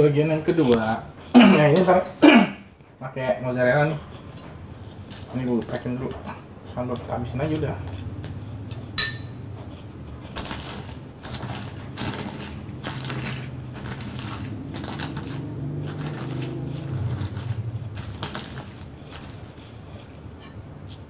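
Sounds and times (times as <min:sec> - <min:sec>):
metal spoon clinking on plate: 0:09.0 - 0:09.4
stone pestle pounding: 0:09.0 - 0:09.4.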